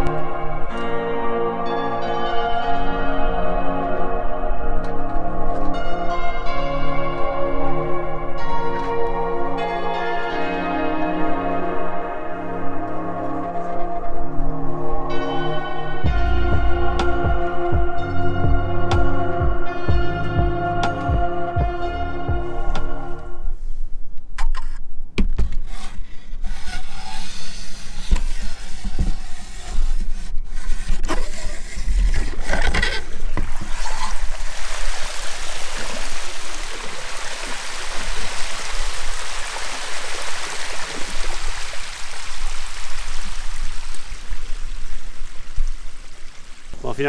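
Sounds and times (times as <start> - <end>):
knocks and scrapes: 24.4 - 34.6
splashing water: 33.4 - 46.8.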